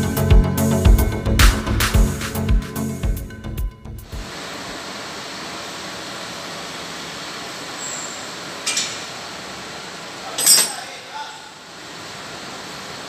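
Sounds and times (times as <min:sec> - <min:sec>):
background music: 0:00.0 - 0:04.1
steady ambient hiss: 0:04.0 - 0:13.0.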